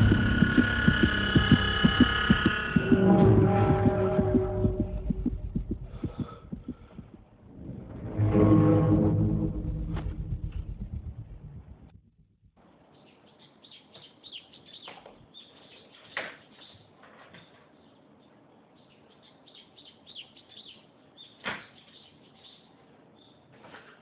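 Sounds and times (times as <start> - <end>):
sharp knocks: 0.0 - 7.2.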